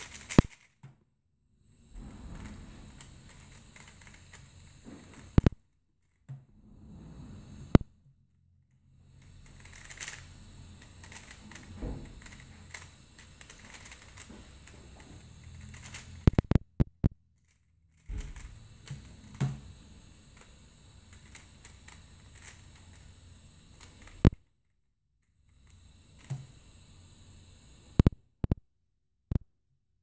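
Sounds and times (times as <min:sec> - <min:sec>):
puzzle cube clicking: 0:00.0 - 0:00.8, 0:03.0 - 0:05.6, 0:09.2 - 0:14.7, 0:15.4 - 0:16.6.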